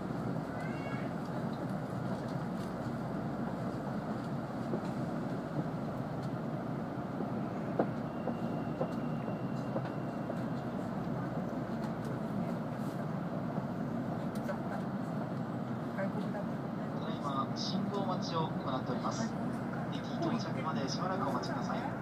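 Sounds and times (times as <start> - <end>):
train running noise from inside: 0.0 - 22.0.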